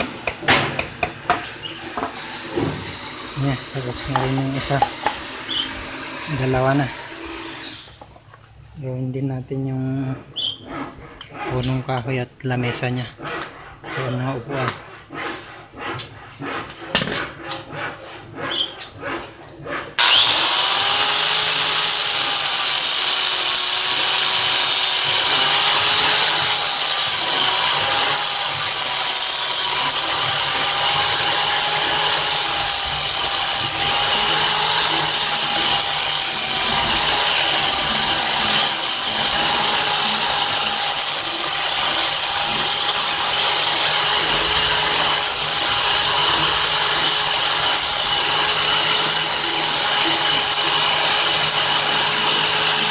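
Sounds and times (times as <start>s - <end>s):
angle grinder sanding wood: 0.0s - 52.9s.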